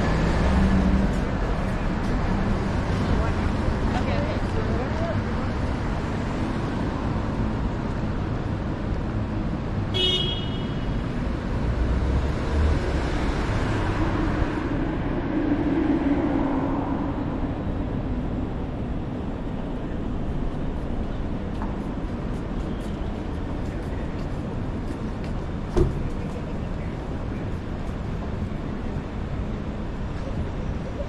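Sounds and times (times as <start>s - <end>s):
city road traffic: 0.0s - 31.0s
short high car horn toot: 10.0s - 10.8s
vehicle rumble passing: 11.0s - 31.0s.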